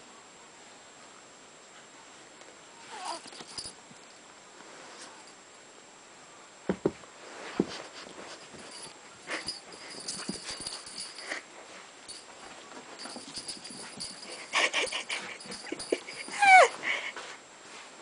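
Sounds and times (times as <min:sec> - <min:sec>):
puppy yipping: 0:02.9 - 0:03.2, 0:16.2 - 0:16.8
soft scuffling: 0:06.7 - 0:18.0.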